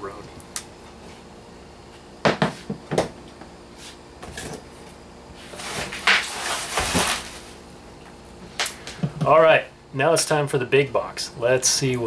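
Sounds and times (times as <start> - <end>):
bubble wrap crinkling: 5.4 - 7.6.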